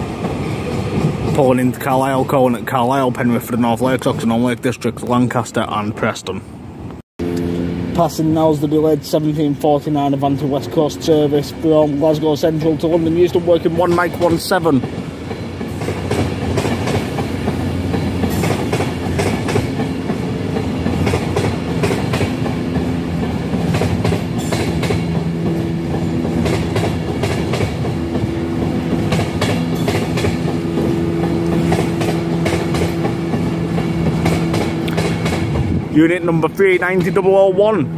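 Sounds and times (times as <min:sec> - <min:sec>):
electric train rumbling past: 0:00.0 - 0:37.9
wheels clacking over rail joints: 0:09.1 - 0:37.5.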